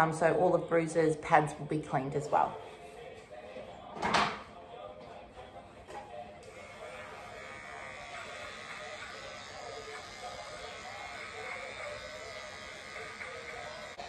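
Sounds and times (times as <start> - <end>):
electric clippers buzzing: 6.4 - 14.0.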